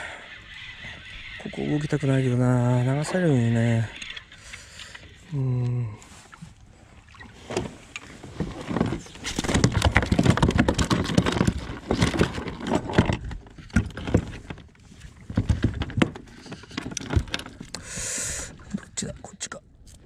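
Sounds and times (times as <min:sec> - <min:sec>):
fishing rod and tackle rattling: 0:00.0 - 0:05.7, 0:07.4 - 0:19.0
fish flapping and knocking on deck: 0:08.5 - 0:14.3.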